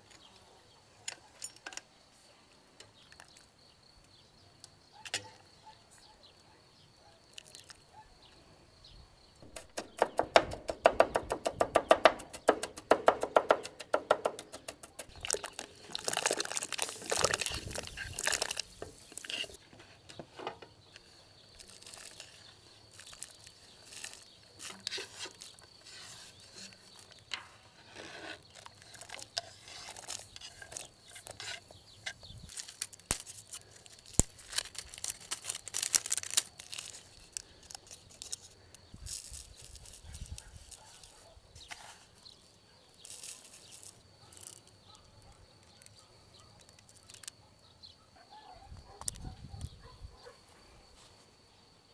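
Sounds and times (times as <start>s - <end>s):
rustling and crinkling: 14.9s - 47.4s.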